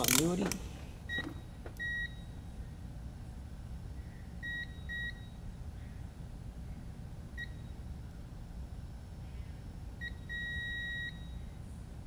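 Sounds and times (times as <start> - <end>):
high-pitched multimeter beeps: 1.1 - 2.4, 4.4 - 5.4, 7.4 - 7.8, 10.0 - 11.5.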